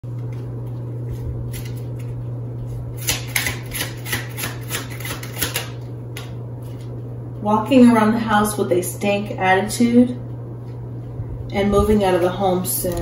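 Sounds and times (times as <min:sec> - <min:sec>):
steady low hum: 0:00.0 - 0:13.0
cards being shuffled: 0:00.2 - 0:02.7.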